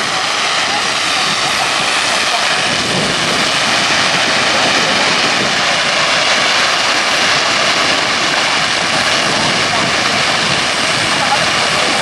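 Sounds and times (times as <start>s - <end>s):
fireworks hissing barrage: 0.0s - 12.0s.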